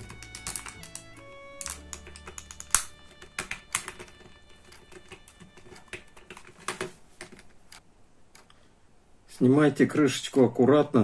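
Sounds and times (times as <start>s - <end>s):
metal tool clicking on plastic latches: 0.0s - 7.8s.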